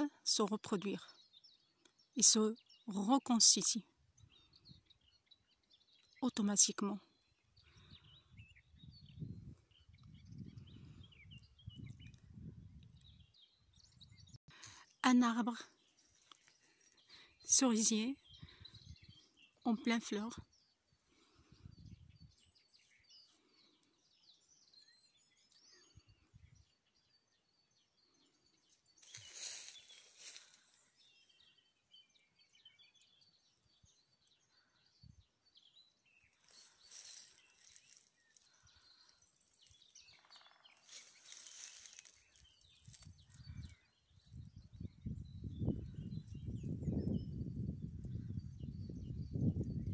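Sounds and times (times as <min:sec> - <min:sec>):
small birds chirping: 0:00.0 - 0:49.9
wind gusts through branches: 0:07.7 - 0:14.4, 0:40.8 - 0:49.9
low wind rumble on microphone: 0:07.8 - 0:14.4, 0:18.2 - 0:19.3, 0:21.5 - 0:22.7, 0:42.6 - 0:49.9.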